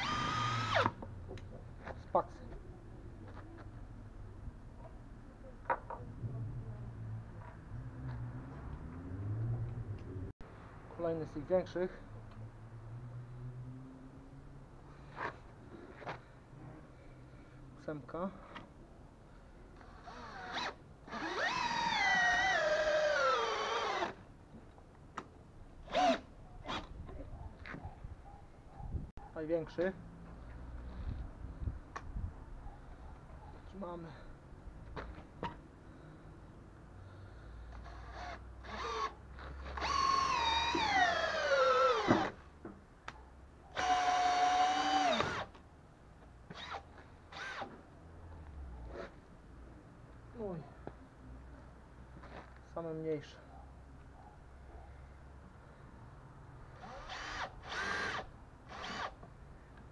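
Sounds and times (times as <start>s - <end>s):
cordless drill driving screw: 0.0s - 1.0s, 19.8s - 24.2s, 25.9s - 26.9s, 37.7s - 42.4s, 43.7s - 45.6s, 46.5s - 47.7s, 56.8s - 59.2s.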